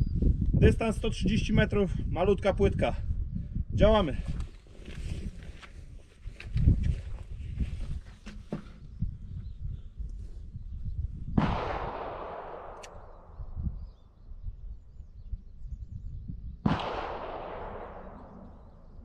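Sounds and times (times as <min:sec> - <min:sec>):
rifle shots with echo: 0:11.4 - 0:13.6, 0:16.6 - 0:19.0.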